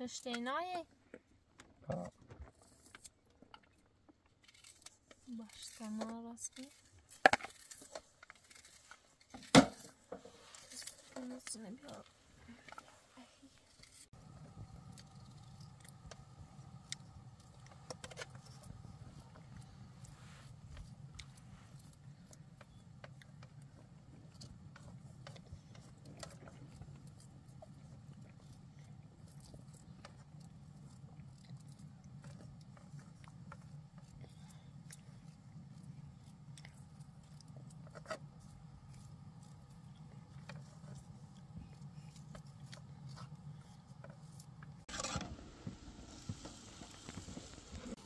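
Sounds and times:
faint clicks and scrapes: 0.0s - 48.0s
steady low hum: 9.6s - 48.0s.

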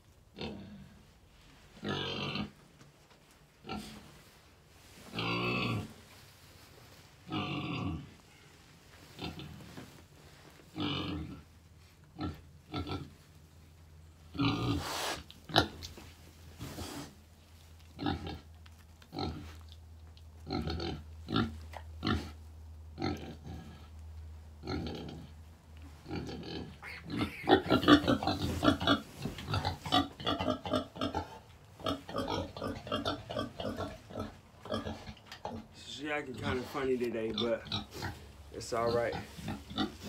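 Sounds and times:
piglets squealing and grunting: 26.1s - 35.6s.

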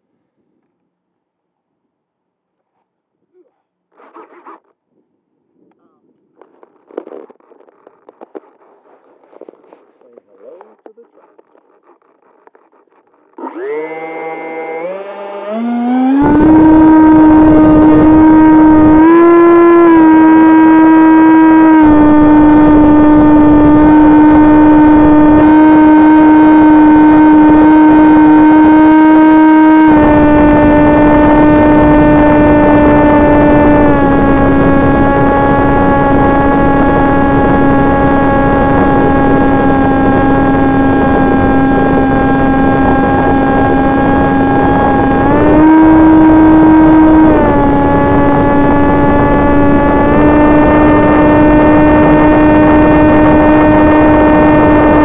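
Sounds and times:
electric motor high whine: 11.3s - 55.0s.

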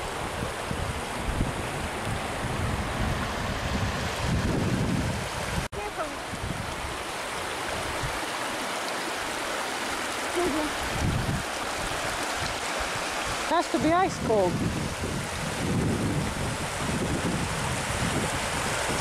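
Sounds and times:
wind on microphone: 0.0s - 8.4s, 10.4s - 19.0s
stream rippling over stones: 0.0s - 19.0s.

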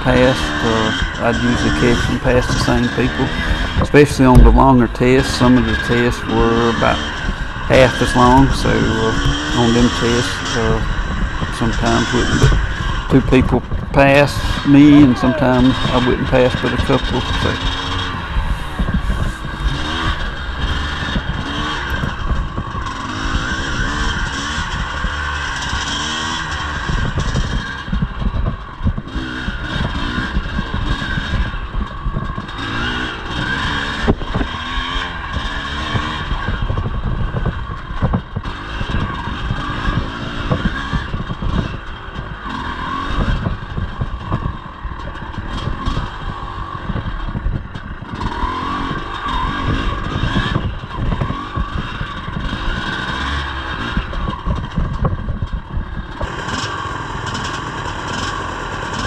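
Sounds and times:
motorcycle engine revving: 0.0s - 59.0s
knocks and clatter: 1.0s - 7.6s, 10.8s - 14.6s.

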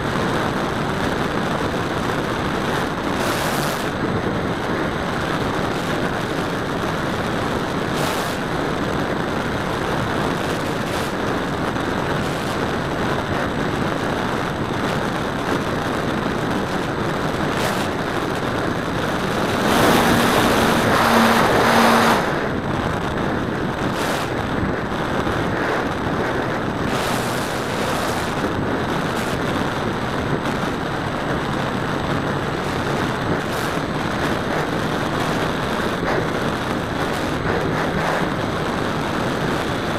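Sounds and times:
rush of airflow: 0.0s - 39.9s
model airplane motor: 19.0s - 22.4s.

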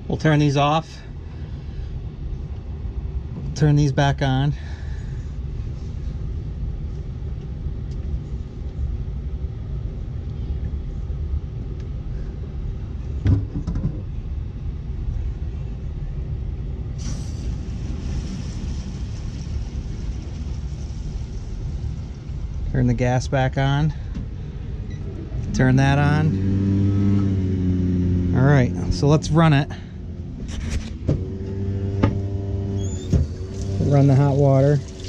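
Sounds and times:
low rumble: 0.0s - 35.0s
water rushing through valves: 32.8s - 35.0s.

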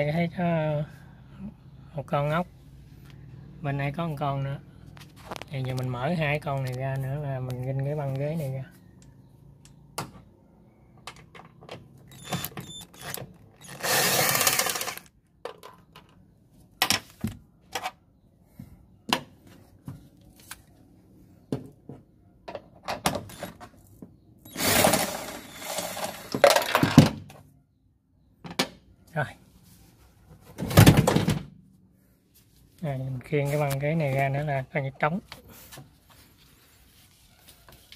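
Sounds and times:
cordless drill running: 12.1s - 15.1s, 24.5s - 26.4s.

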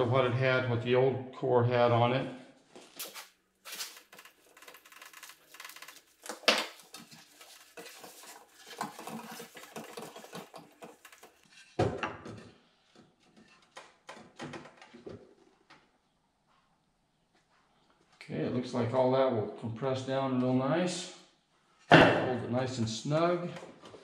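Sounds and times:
clicks scrapes and rustles: 2.9s - 11.8s.

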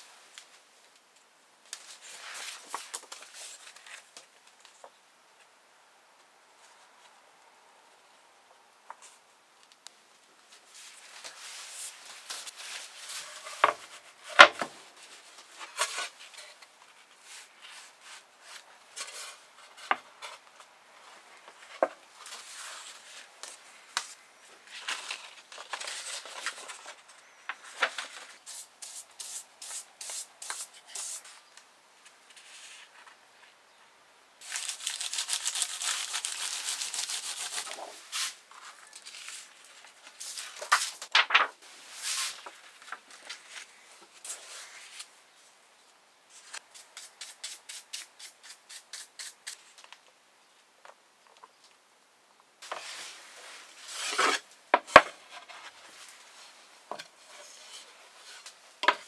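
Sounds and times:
paper rustling and crackling: 21.4s - 28.5s, 34.4s - 45.1s.

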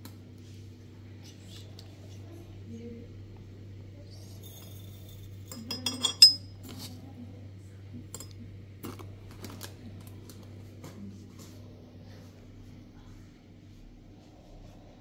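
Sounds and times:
hard objects clinking: 4.5s - 6.5s.

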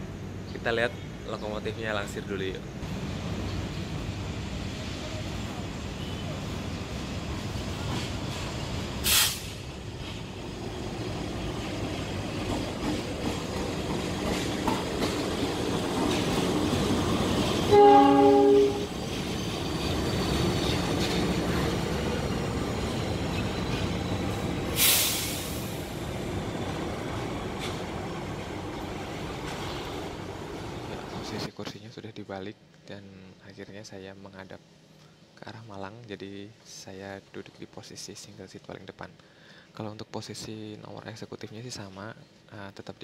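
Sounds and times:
locomotive engine rumble: 0.1s - 31.4s
sharp hisses: 7.7s - 10.5s, 19.0s - 26.3s
locomotive horn chord: 17.7s - 19.0s.

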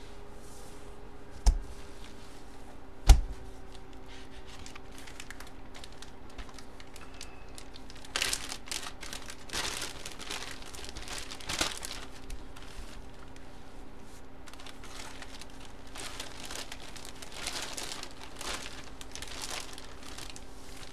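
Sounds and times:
plastic bag crinkling: 3.6s - 13.5s, 14.4s - 20.9s.

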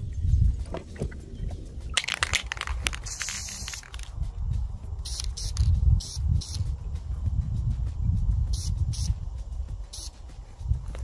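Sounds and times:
wind buffeting microphone: 0.0s - 11.0s
crackling and rustling noise: 0.6s - 5.9s.

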